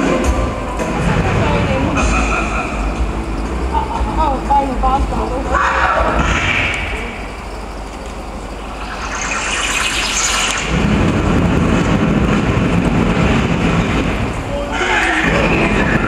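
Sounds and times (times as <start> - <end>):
dense low rumbling: 6.9 - 14.7
rising whoosh: 8.5 - 12.4.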